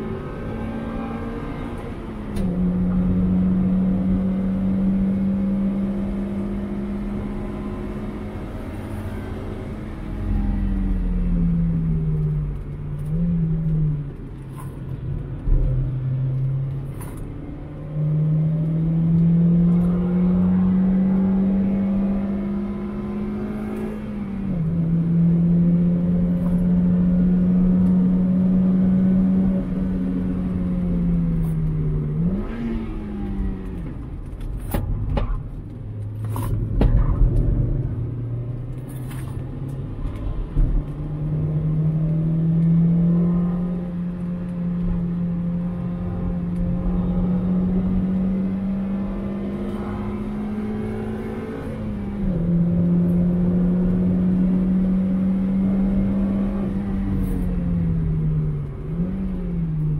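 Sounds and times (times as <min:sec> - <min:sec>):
car engine revving: 0:17.8 - 0:59.9.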